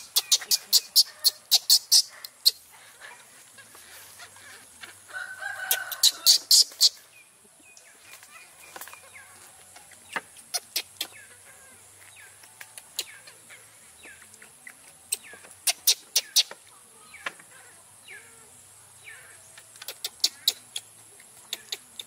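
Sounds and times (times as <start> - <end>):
high-pitched animal chirps: 0.0 - 2.6, 5.9 - 7.0.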